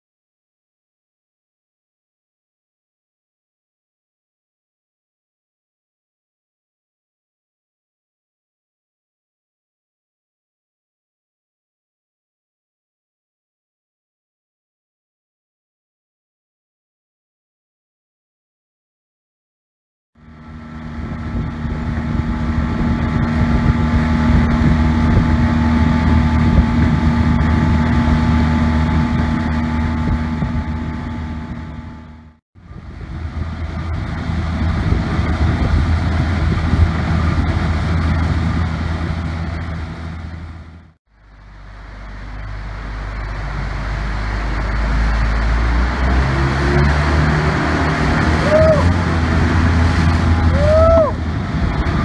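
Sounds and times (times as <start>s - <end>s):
small boat motor running: 20.2s - 52.0s
wind on microphone: 20.4s - 40.8s, 42.3s - 52.0s.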